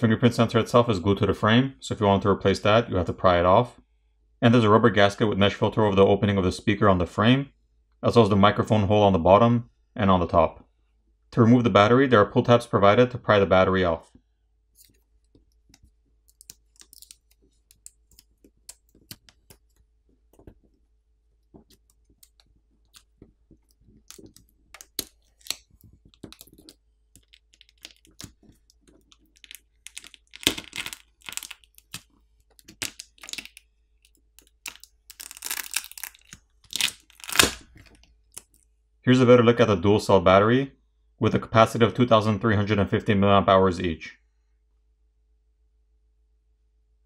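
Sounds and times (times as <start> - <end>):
adhesive crinkling and tearing: 14.8 - 20.8, 21.4 - 38.6
adhesive tabs clicking and crackling: 14.8 - 20.8, 21.4 - 38.6.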